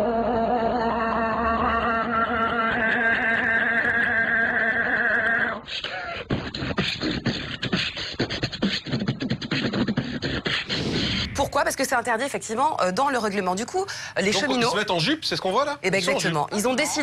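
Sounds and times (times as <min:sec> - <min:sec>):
beatboxing mouth clicks and beats: 0:05.7 - 0:11.3.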